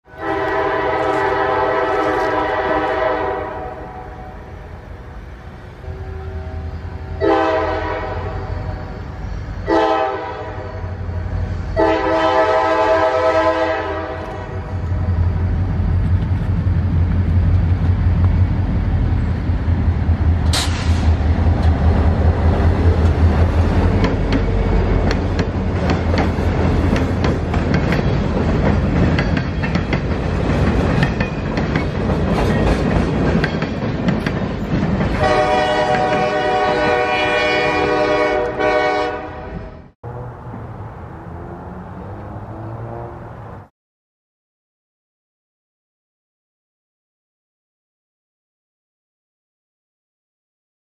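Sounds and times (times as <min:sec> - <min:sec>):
locomotive air horn blasts: 0:00.1 - 0:04.5, 0:05.8 - 0:08.9, 0:09.6 - 0:14.8, 0:35.2 - 0:39.9
locomotive engines rumbling: 0:00.2 - 0:43.6
train wheels clattering on rails: 0:20.3 - 0:36.9.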